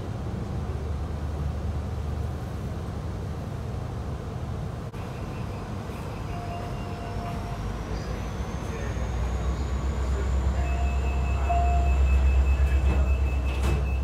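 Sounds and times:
diesel locomotives rumbling past: 0.0s - 14.0s.

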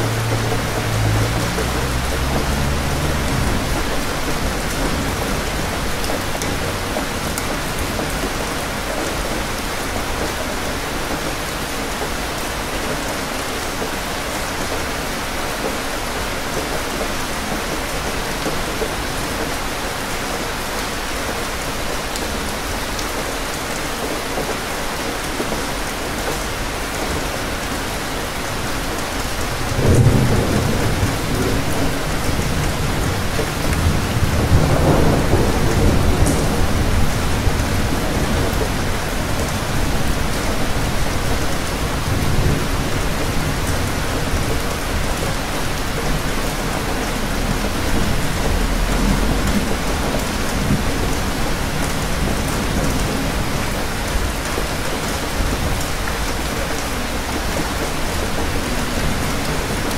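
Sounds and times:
thunder rumbling: 0.0s - 8.8s, 29.6s - 56.3s
steady rain falling: 0.0s - 59.9s.

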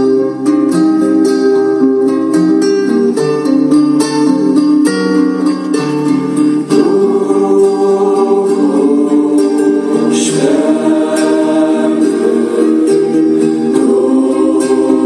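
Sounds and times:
plucked string accompaniment: 0.0s - 15.0s
held singing voices: 6.6s - 15.0s.

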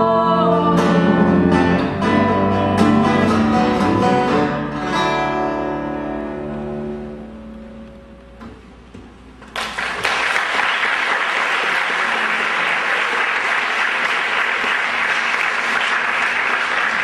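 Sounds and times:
acoustic guitar and cello music: 0.0s - 8.5s
audience applause: 9.5s - 17.0s.

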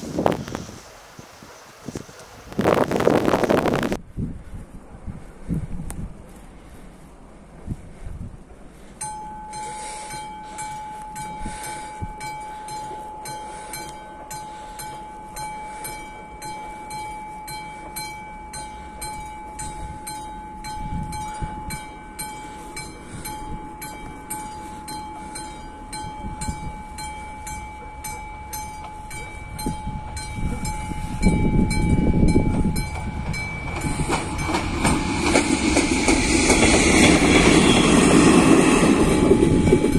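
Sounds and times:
level crossing bell ringing: 9.0s - 34.7s.

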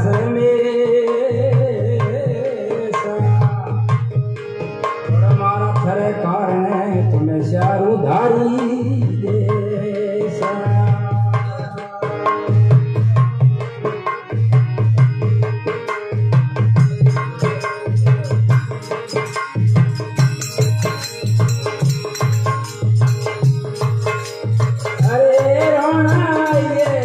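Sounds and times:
harmonium melody: 0.0s - 27.0s
hand drum beat: 16.4s - 27.0s.

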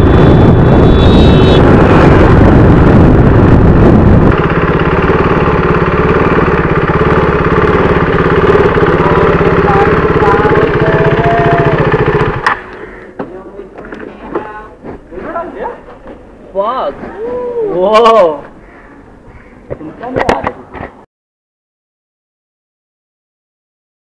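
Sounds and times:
wind noise: 0.0s - 5.2s
motorcycle engine running: 0.0s - 13.0s.

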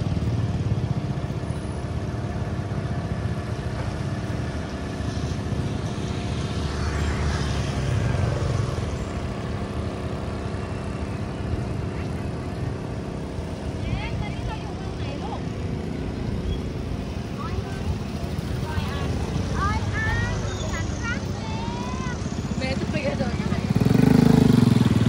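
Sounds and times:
boat engine rumbling: 7.8s - 25.0s.

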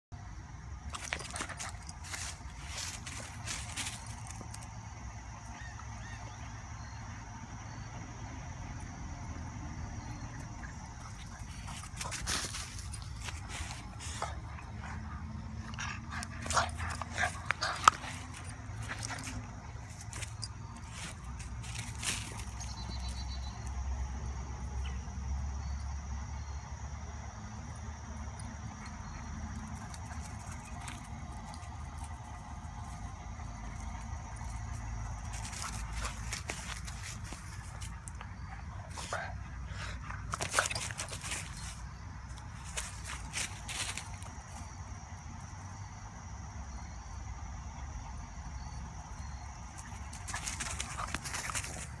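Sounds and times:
insect trill: 0.2s - 52.0s
dry leaves rustling and crunching: 0.9s - 4.5s, 11.4s - 14.2s, 19.9s - 22.9s, 42.6s - 44.3s.

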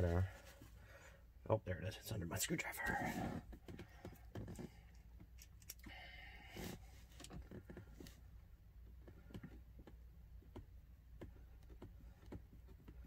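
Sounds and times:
low steady hum: 0.0s - 13.0s
faint clicks and scrape of hand work: 8.8s - 13.0s.

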